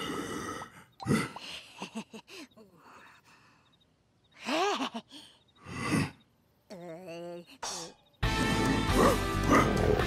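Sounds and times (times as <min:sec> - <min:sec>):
cartoon character vocal sounds: 0:06.0 - 0:08.0.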